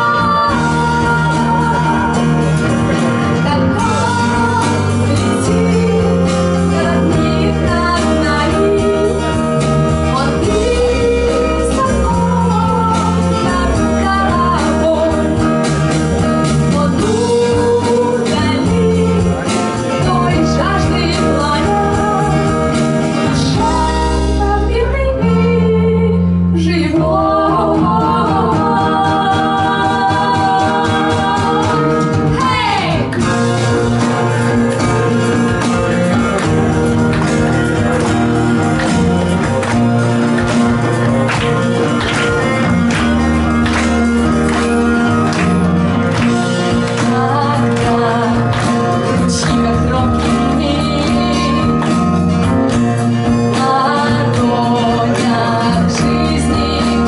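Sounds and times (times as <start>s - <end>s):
second female voice singing: 0.0s - 2.5s, 10.1s - 15.4s, 23.2s - 33.2s, 46.8s - 52.1s, 53.5s - 57.0s
woman singing: 0.0s - 33.5s, 44.5s - 57.0s
acoustic guitar: 0.0s - 57.0s
bass line: 0.0s - 57.0s.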